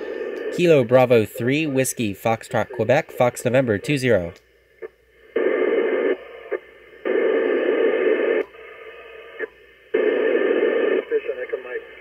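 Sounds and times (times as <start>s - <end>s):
radio receiver hiss: 0.0s - 12.0s
radio squelch clicks: 0.3s - 0.5s.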